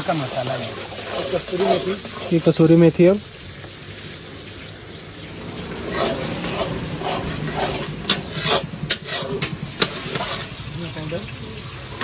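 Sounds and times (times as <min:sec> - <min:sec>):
spatula scraping a pan: 0:00.0 - 0:02.9, 0:05.7 - 0:10.7
onions sizzling in a pan: 0:00.0 - 0:12.0.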